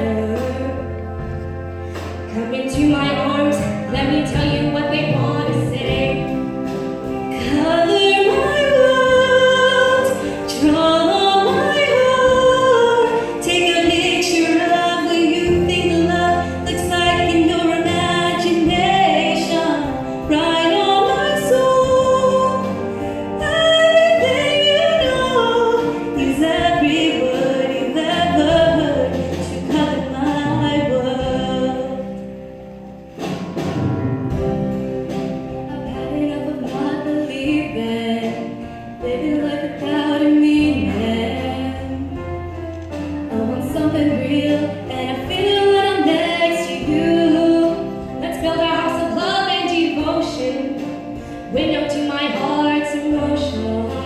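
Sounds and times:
women singing into microphones: 7.2s - 32.1s, 35.7s - 42.3s, 43.3s - 54.0s.

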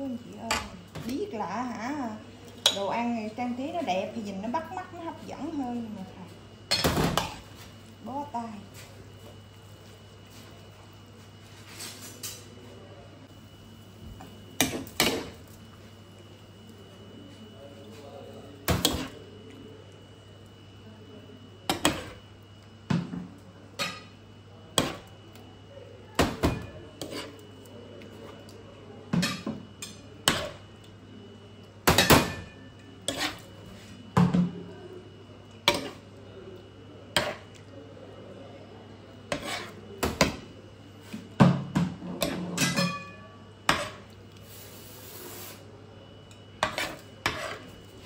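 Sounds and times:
metal spoon scraping pan and plates: 27.0s - 27.4s, 33.1s - 33.4s, 39.3s - 39.8s, 46.6s - 47.7s.

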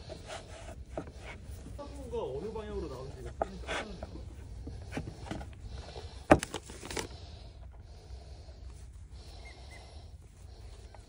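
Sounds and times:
hands kneading dough: 0.0s - 7.1s.

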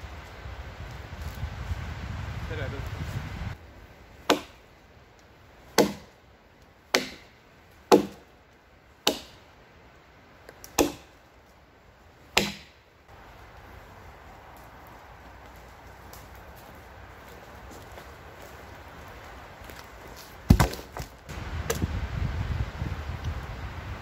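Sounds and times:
hatchet chopping wood: 4.2s - 4.6s, 5.7s - 6.2s, 6.9s - 8.3s, 9.0s - 9.4s, 10.5s - 11.2s, 12.3s - 12.8s, 20.5s - 21.1s.

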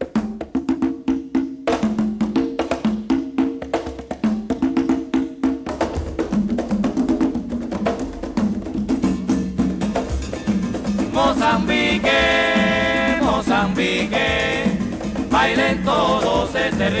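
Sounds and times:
fast percussion strikes: 0.0s - 17.0s
low drum line: 5.6s - 17.0s.

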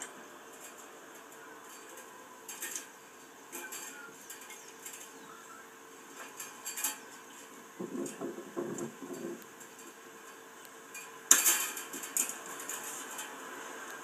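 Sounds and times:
wire and chain clinking: 6.1s - 8.2s.

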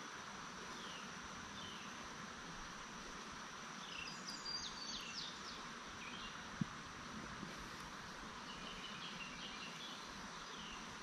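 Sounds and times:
high insect drone: 0.0s - 11.0s
birds chirping: 8.4s - 10.9s.

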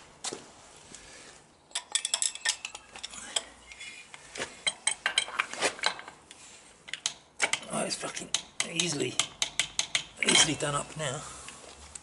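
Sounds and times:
steel tools clinking on metal: 1.7s - 3.8s, 6.9s - 10.8s.

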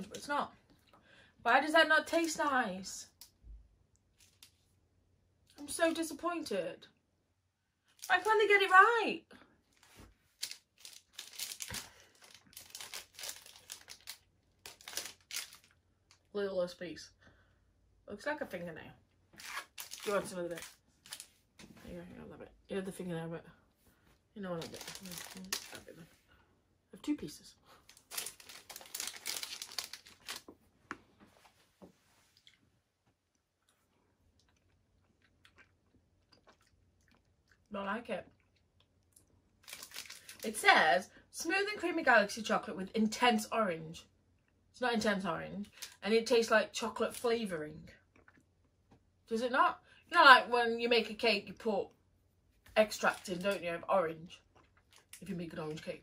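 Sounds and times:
plastic wrapper crinkling: 7.9s - 8.4s, 9.7s - 16.2s, 19.4s - 21.3s, 24.5s - 26.0s, 27.8s - 30.6s, 39.6s - 40.6s.

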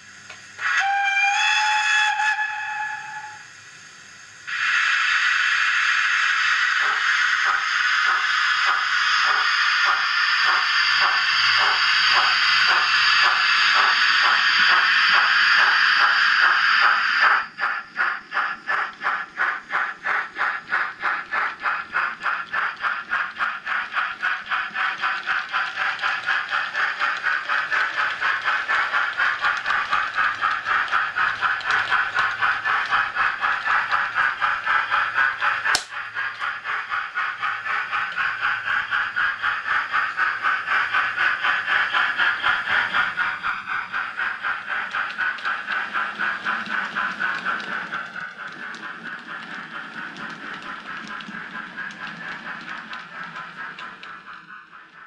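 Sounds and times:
model steam locomotive chuffing: 0.0s - 55.0s
sharp click: 35.4s - 36.5s.

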